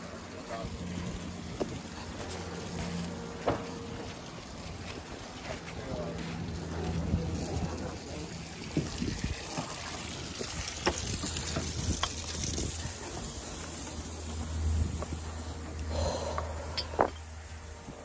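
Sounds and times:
low rumble and hiss: 0:00.0 - 0:18.0.

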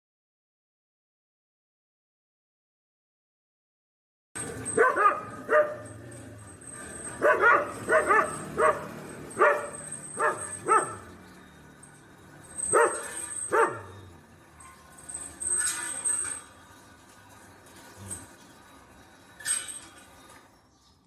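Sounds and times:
dog yelping barks: 0:04.7 - 0:06.0, 0:06.8 - 0:11.1, 0:12.6 - 0:14.0.

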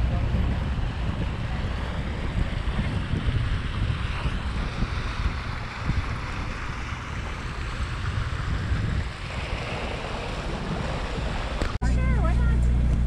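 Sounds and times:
wind buffeting microphone: 0:00.0 - 0:13.0
water hissing along hull: 0:00.2 - 0:11.8.

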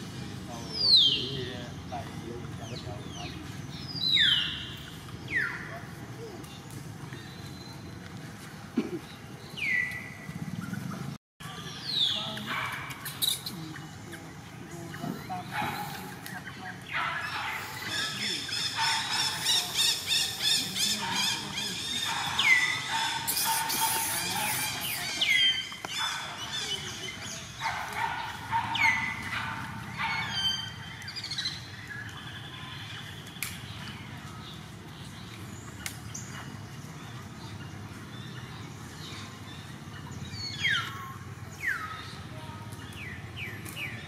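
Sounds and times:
animal squeals: 0:20.7 - 0:25.4.

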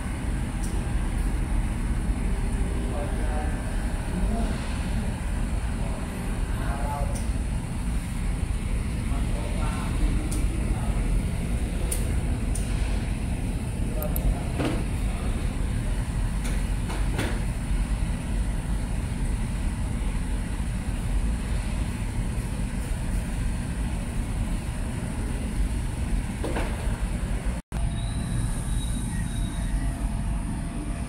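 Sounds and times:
low rumbling background noise: 0:00.0 - 0:31.0
faint high whine: 0:27.8 - 0:31.0.

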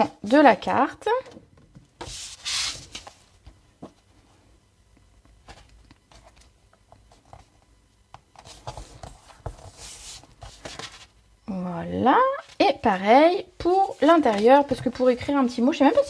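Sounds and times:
hands rubbing cardstock: 0:02.0 - 0:03.1.

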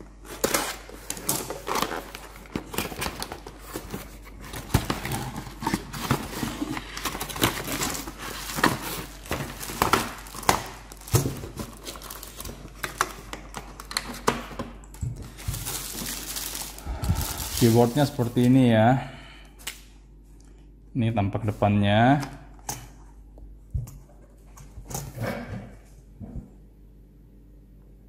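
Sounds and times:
plastic wrap crinkling: 0:00.0 - 0:18.7.

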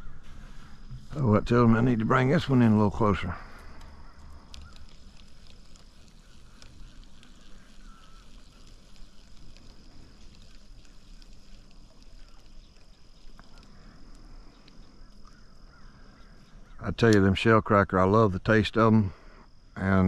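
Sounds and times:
light ticks: 0:03.6 - 0:15.4.

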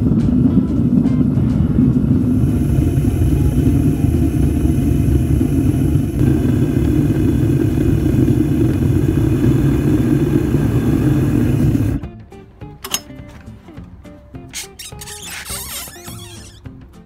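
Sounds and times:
faint hum: 0:00.0 - 0:12.1
flame rumbling: 0:00.0 - 0:12.1.

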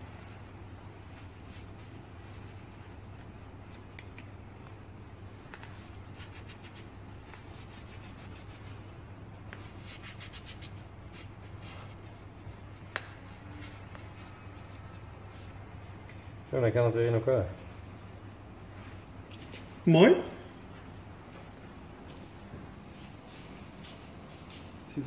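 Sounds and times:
cloth rubbing on rubber: 0:00.0 - 0:16.0
steady low hum: 0:00.0 - 0:25.0.

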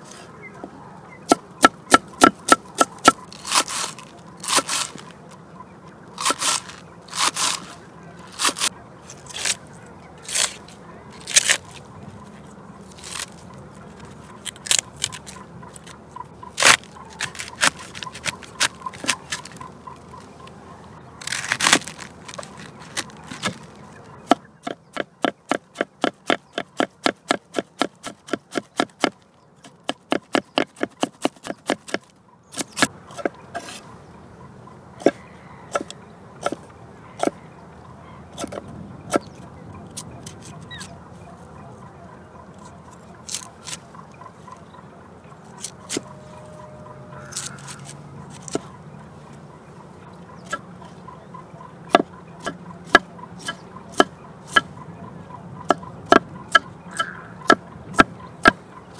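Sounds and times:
knife chopping vegetables: 0:24.3 - 0:33.8.

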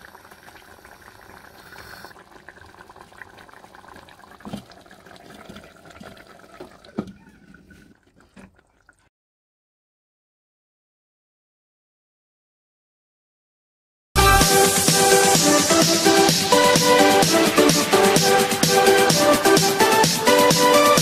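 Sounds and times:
curry bubbling in a pot: 0:00.0 - 0:09.1.

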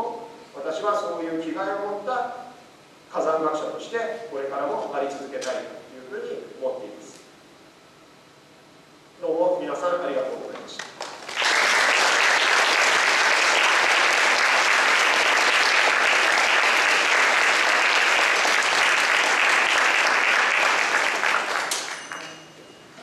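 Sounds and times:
audience applauding: 0:10.8 - 0:22.3.

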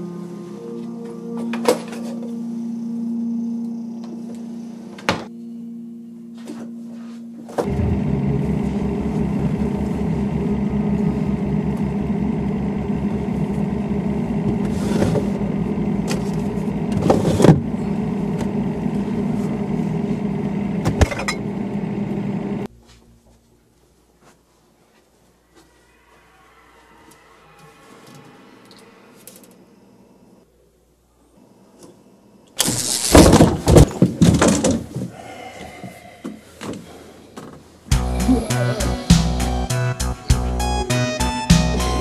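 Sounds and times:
low steady hum: 0:00.0 - 0:24.2
rapidly pulsing low rumble: 0:07.7 - 0:14.7.

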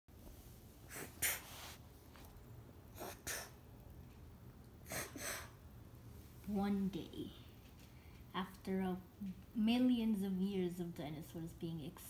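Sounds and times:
person breathing heavily: 0:04.9 - 0:05.6.

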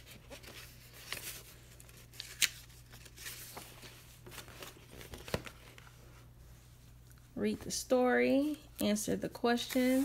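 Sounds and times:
paper pages turning: 0:00.0 - 0:06.1.

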